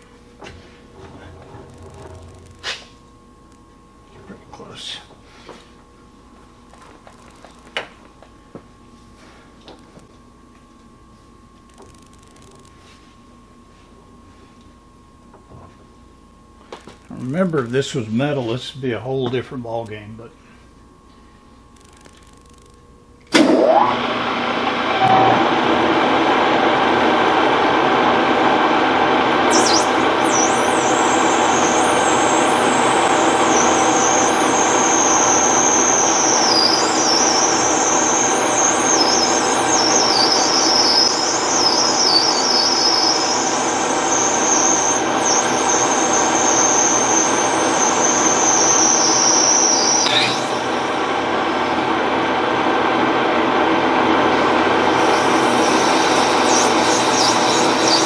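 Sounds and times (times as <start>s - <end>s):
lathe running: 23.3s - 58.0s
cutting tool squealing: 29.5s - 50.9s, 54.8s - 58.0s.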